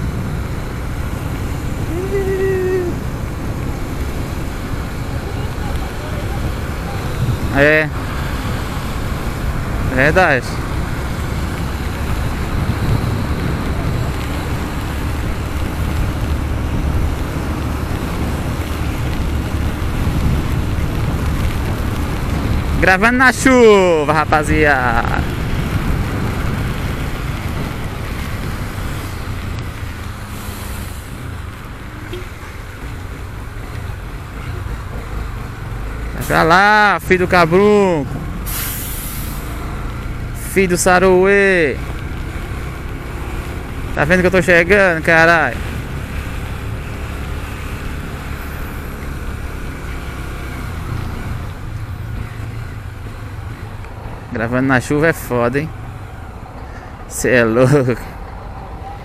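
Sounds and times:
wind rushing on microphone: 0:00.0 - 0:38.5
passing traffic: 0:00.0 - 0:59.0
tyres on wet road: 0:00.0 - 0:59.0.

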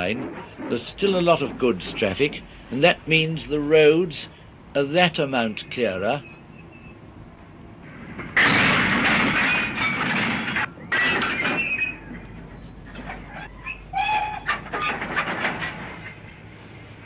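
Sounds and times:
wagons clattering over rails: 0:00.0 - 0:04.3, 0:07.8 - 0:17.0
train rushing noise: 0:00.0 - 0:04.7
train wheel squeal: 0:06.2 - 0:07.0, 0:13.2 - 0:14.9.

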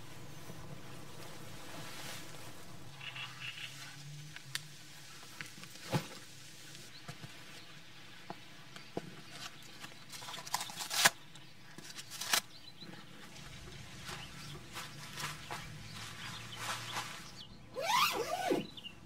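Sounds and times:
foam pad rustling and scraping: 0:00.0 - 0:07.7, 0:11.8 - 0:18.7.

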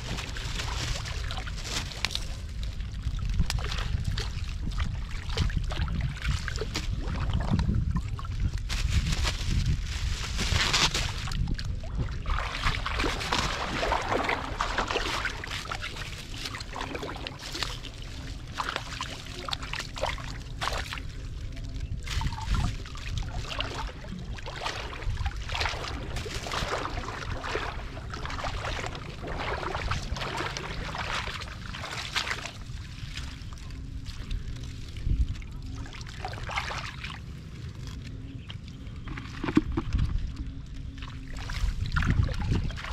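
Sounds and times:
muddy water splashing: 0:00.0 - 0:42.9.

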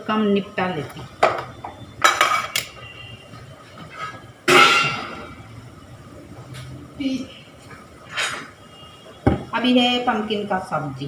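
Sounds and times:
dishes and utensils clattering: 0:01.2 - 0:02.8, 0:03.8 - 0:05.4.

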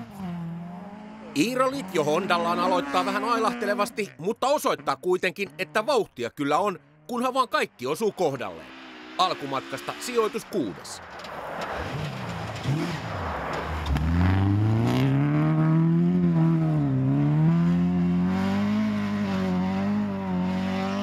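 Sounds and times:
rally car engine revving hard: 0:00.0 - 0:04.0, 0:11.7 - 0:13.2, 0:13.8 - 0:21.0.

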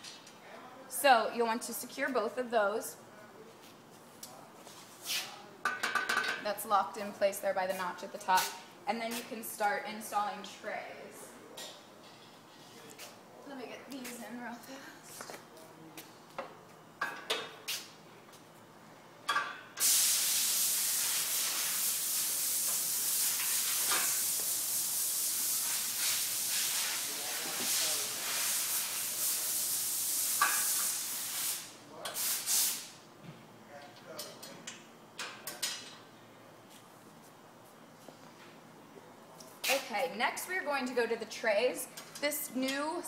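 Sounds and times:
loud steady hiss: 0:19.7 - 0:33.0.

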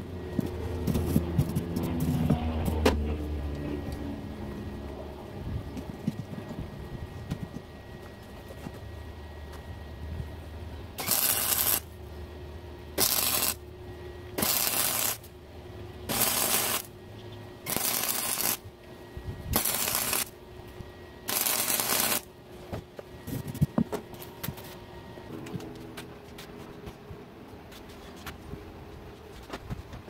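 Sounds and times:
welder arc crackling: 0:11.0 - 0:12.0, 0:13.0 - 0:13.6, 0:14.4 - 0:15.3, 0:16.1 - 0:17.0, 0:17.6 - 0:18.7, 0:19.5 - 0:20.4, 0:21.2 - 0:22.3.

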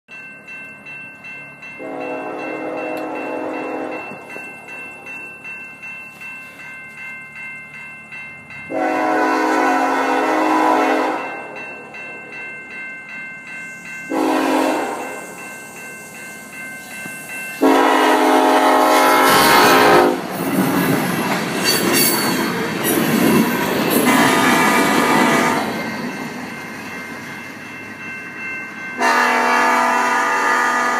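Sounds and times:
bell ringing: 0:00.1 - 0:09.8, 0:10.9 - 0:29.6
locomotive horn blasts: 0:01.8 - 0:04.2, 0:08.7 - 0:11.3, 0:14.1 - 0:15.1, 0:17.6 - 0:20.2, 0:24.1 - 0:25.7, 0:29.0 - 0:30.9
wheels on rails: 0:14.8 - 0:29.8.

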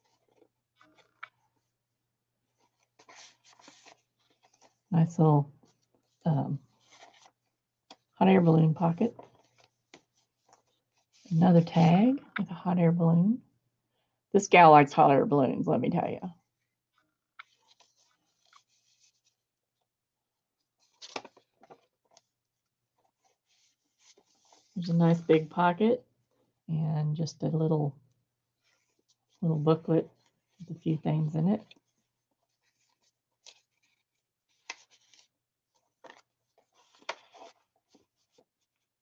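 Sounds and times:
page turning: 0:00.0 - 0:01.7, 0:02.6 - 0:04.9, 0:05.6 - 0:08.1, 0:09.1 - 0:11.3, 0:17.4 - 0:19.4, 0:20.7 - 0:25.3, 0:31.6 - 0:39.0
paper rustling: 0:00.0 - 0:01.7, 0:02.5 - 0:04.9, 0:05.6 - 0:08.1, 0:09.1 - 0:11.3, 0:16.5 - 0:19.4, 0:20.7 - 0:25.3, 0:28.6 - 0:29.4, 0:31.6 - 0:39.0.

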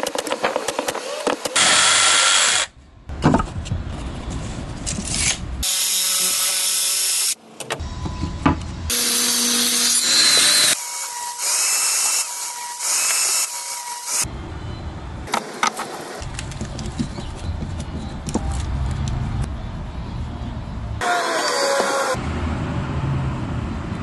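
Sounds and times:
power saws cutting wood: 0:08.9 - 0:14.3, 0:21.0 - 0:22.2.

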